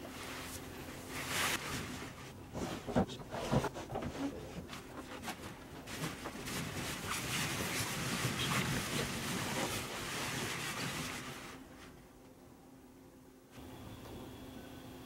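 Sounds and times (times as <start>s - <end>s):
balloons rustling and squeaking: 1.1s - 11.6s.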